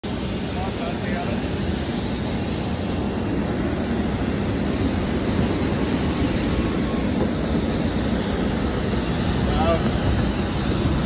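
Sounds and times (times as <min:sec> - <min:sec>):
airliner engine rumble with hiss: 0:00.0 - 0:11.0.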